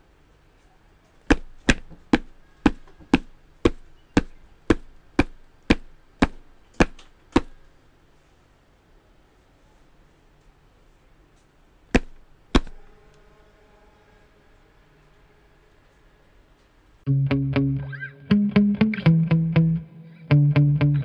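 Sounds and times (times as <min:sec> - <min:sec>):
cartoon footsteps: 0:01.3 - 0:07.6, 0:12.0 - 0:12.8.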